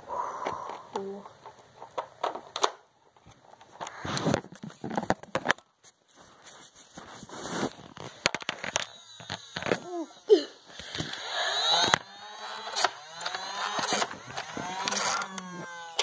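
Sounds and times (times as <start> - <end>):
plastic clicks and knocks: 0.4 - 5.7, 8.0 - 9.8
rustling: 1.4 - 11.9
run of sharp clicks: 10.7 - 16.0.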